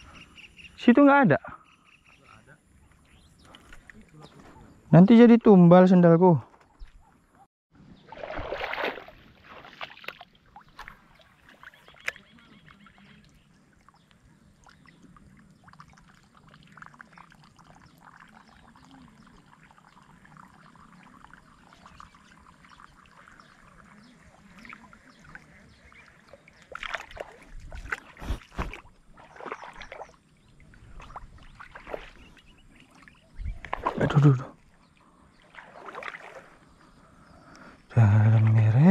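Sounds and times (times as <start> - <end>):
water sloshing and splashing: 7.9 - 38.9.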